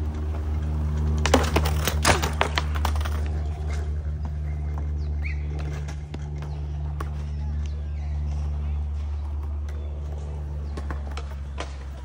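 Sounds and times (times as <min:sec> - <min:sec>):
steady low hum: 0:00.0 - 0:12.0
skateboard clacking on concrete: 0:01.0 - 0:03.8, 0:09.3 - 0:12.0.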